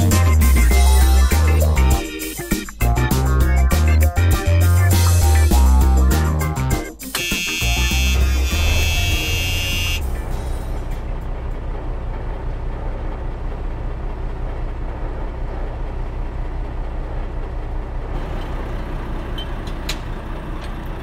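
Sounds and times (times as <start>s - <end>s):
music: 0.0s - 11.6s
vehicle engine rumbling: 7.3s - 21.0s.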